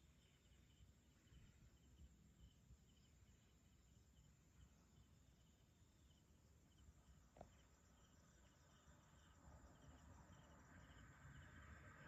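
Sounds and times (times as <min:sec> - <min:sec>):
insects chirping: 0:00.0 - 0:12.0.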